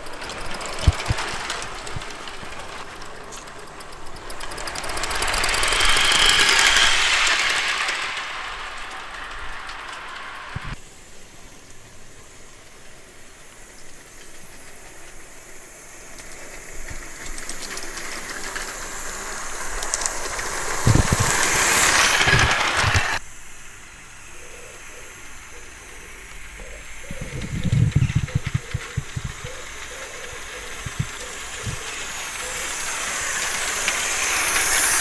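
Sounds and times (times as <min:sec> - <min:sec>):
steam hissing: 0:00.0 - 0:35.0
quick rhythmic thumps: 0:27.1 - 0:32.1.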